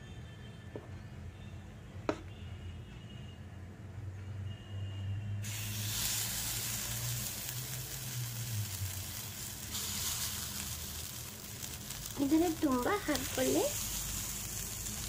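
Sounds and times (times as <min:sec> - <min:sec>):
batter sizzling in hot pan: 0:05.4 - 0:15.0.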